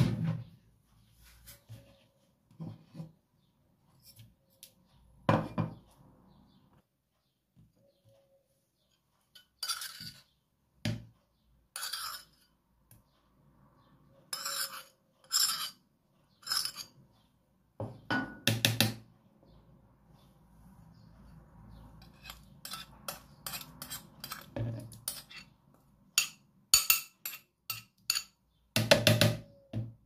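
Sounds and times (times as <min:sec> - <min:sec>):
teaspoon clinking on plate and bowl: 0:26.2 - 0:28.4.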